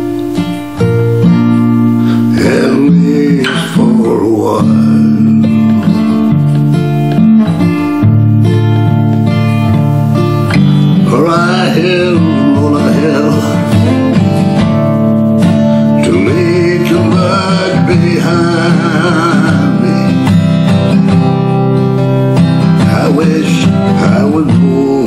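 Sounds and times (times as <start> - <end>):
strummed acoustic guitar: 0.0 - 25.0
man singing: 2.0 - 6.3, 10.6 - 14.8, 15.4 - 21.6, 22.5 - 25.0.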